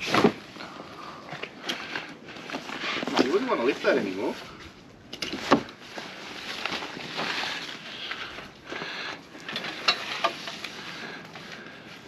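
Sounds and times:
heavy canvas rustling: 1.8s - 4.7s, 5.3s - 12.0s.

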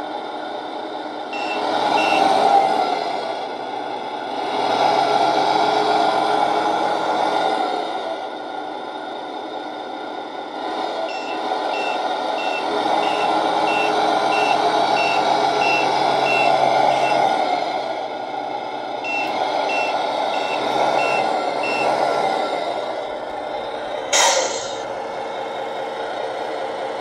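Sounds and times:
simulated truck engine running: 0.0s - 27.0s
reversing beeps: 1.4s - 2.4s, 11.1s - 17.3s, 19.1s - 22.0s.

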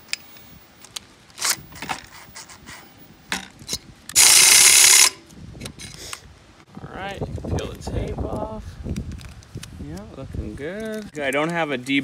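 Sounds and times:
cordless drill drilling metal: 4.2s - 5.2s.

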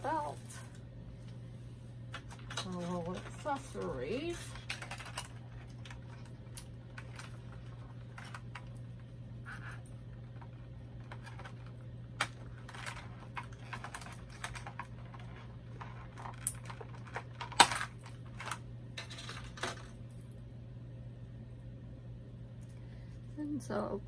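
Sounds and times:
steady low hum: 0.0s - 24.0s
plastic clicks and crinkles: 2.1s - 19.9s.

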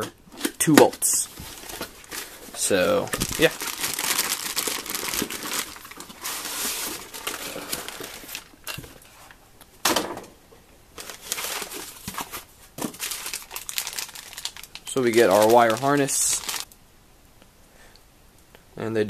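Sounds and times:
plastic packaging crinkling: 0.4s - 9.1s, 11.0s - 16.8s.

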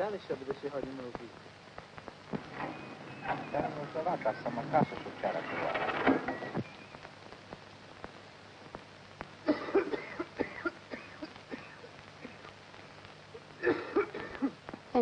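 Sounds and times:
film soundtrack crackle: 0.0s - 15.0s
low hum: 1.4s - 9.3s.

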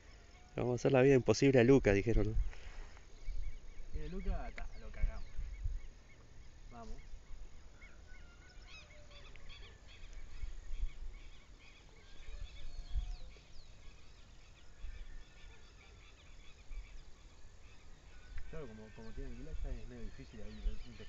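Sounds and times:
birds chirping: 0.0s - 21.0s
wind on microphone: 1.8s - 6.0s, 10.2s - 11.3s, 12.2s - 13.7s.

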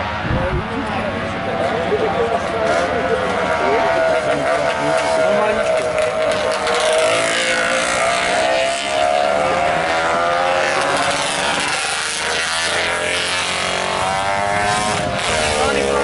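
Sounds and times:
racing motorcycles passing: 0.0s - 16.0s.

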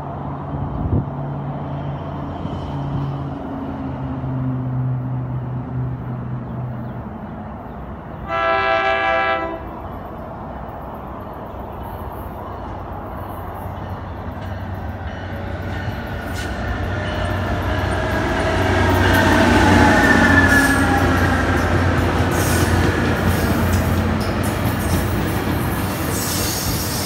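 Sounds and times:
train low hum: 0.0s - 27.0s
train horn blast: 8.2s - 9.8s.

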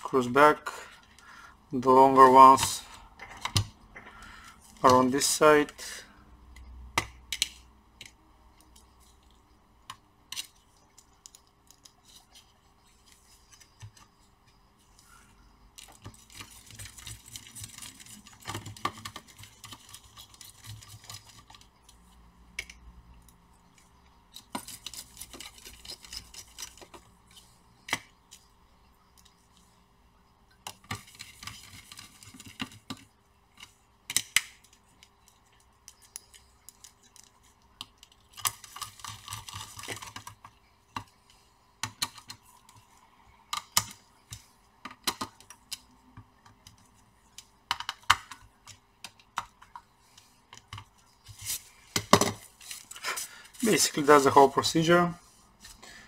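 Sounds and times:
clicks and taps of metal and plastic: 43.5s - 49.9s.

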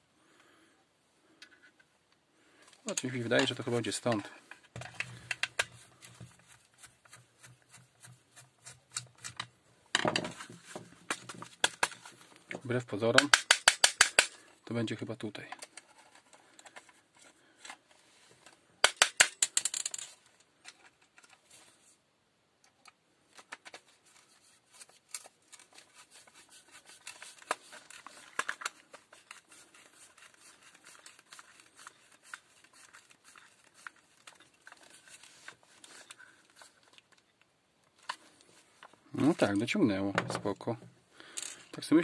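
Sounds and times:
screw scratching and creaking in plastic: 2.8s - 14.3s, 15.4s - 21.5s, 23.4s - 37.4s
sharp clicks and rattles: 18.8s - 21.3s.

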